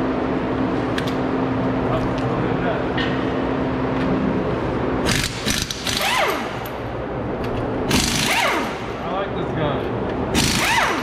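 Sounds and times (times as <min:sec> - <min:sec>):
pneumatic impact wrench rattling: 0:05.0 - 0:06.8, 0:07.9 - 0:09.0, 0:10.3 - 0:11.0.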